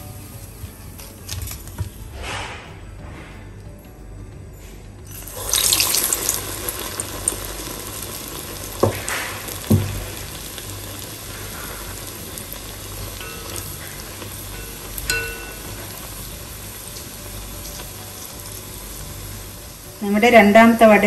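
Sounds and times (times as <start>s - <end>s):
batter sizzling in hot oil: 5.1s - 21.0s.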